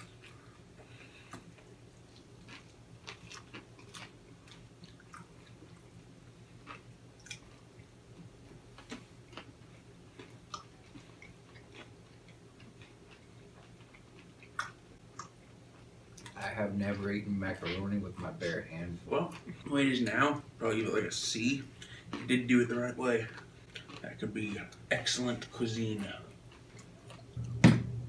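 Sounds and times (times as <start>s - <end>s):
people quietly chewing: 0.0s - 27.5s
faint low hum: 0.0s - 28.0s
soft mouth clicks and smacks: 7.2s - 7.5s, 13.8s - 15.4s.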